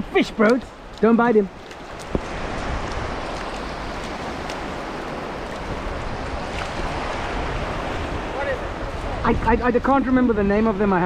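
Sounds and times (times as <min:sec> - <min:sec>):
surf washing over sand: 0:00.0 - 0:11.0
fish splashing in water: 0:00.8 - 0:08.0.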